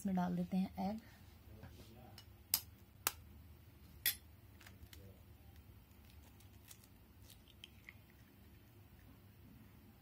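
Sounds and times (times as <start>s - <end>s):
egg cracking on bowl: 4.0s - 9.1s.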